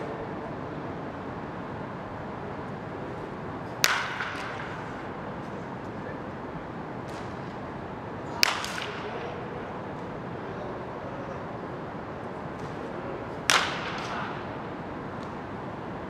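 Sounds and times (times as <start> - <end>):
wooden bat striking baseball: 3.8 - 4.9, 8.4 - 9.3, 13.4 - 14.5.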